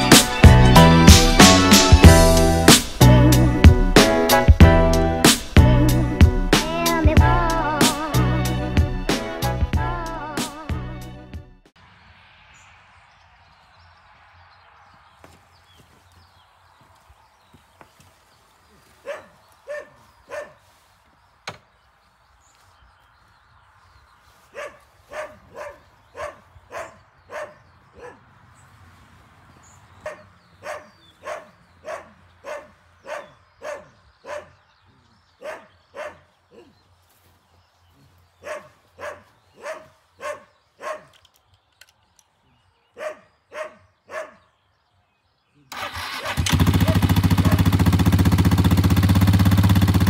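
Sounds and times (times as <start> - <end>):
dog barking: 19.0 - 20.6, 24.5 - 28.2, 30.0 - 34.6, 35.4 - 36.8, 38.4 - 41.2, 43.0 - 44.5, 46.8 - 47.6.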